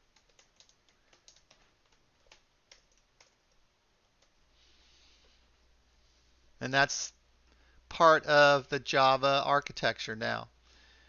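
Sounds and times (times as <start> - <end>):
faint keyboard typing: 0.0 - 4.4.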